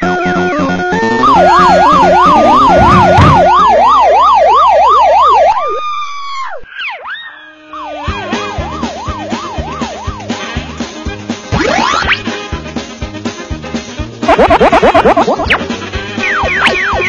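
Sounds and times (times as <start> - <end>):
siren yelping: 0.0 - 10.7, 14.2 - 15.6, 16.2 - 17.0.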